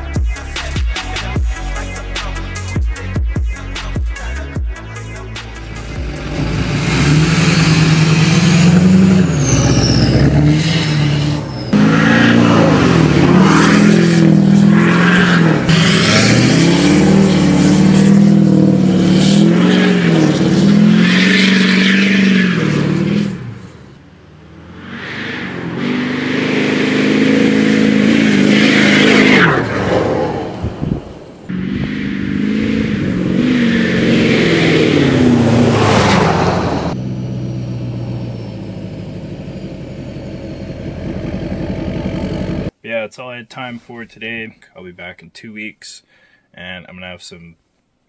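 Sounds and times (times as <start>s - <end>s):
diesel engine revving: 5.4s - 42.8s.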